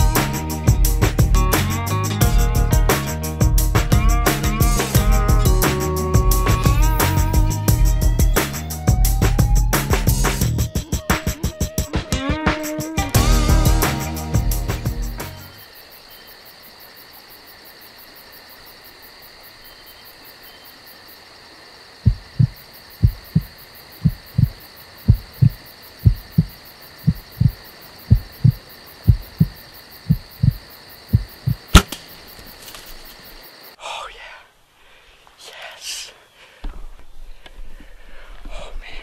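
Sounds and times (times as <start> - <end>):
heartbeat thumping: 6.2 - 11.8, 22.0 - 31.8
insects humming: 13.3 - 38.4
bow shot snap: 31.7 - 33.0.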